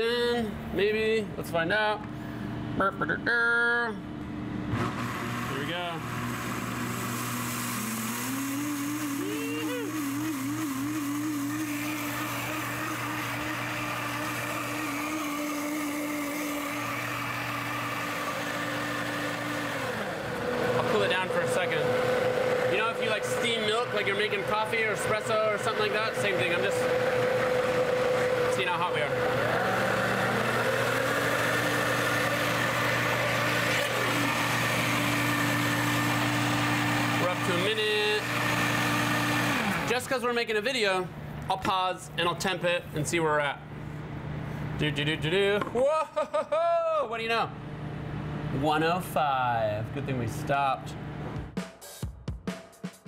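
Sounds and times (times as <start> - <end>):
blender motor whine: 4.4 - 40.2.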